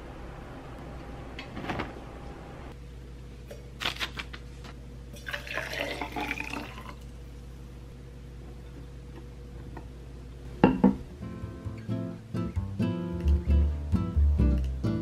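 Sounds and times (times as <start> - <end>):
water pouring into cup: 5.2 - 7.1.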